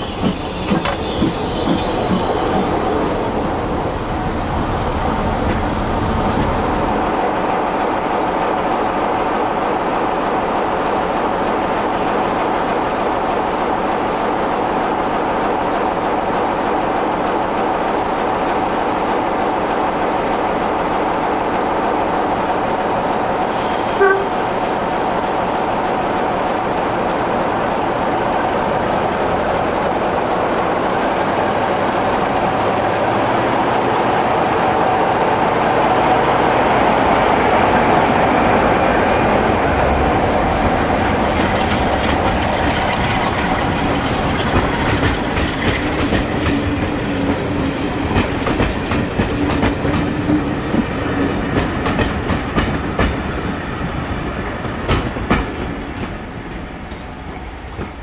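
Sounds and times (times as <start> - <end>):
train wheels clicking over rail joints: 0.0 - 7.1, 39.2 - 58.0
diesel locomotive pulling away: 0.0 - 7.5, 20.5 - 28.0, 31.2 - 58.0.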